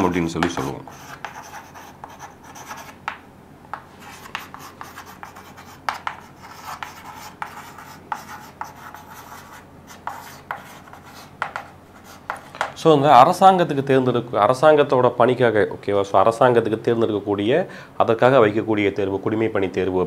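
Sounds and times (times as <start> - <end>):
chalk scratching on chalkboard: 0.0 - 3.1, 3.7 - 12.7.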